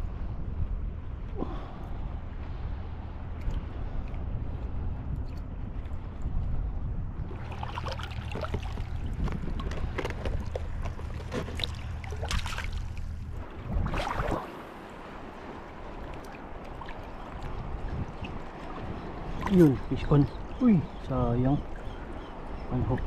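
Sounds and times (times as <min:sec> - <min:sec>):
wind noise: 0:00.0 - 0:23.0
water splashing: 0:07.3 - 0:23.0.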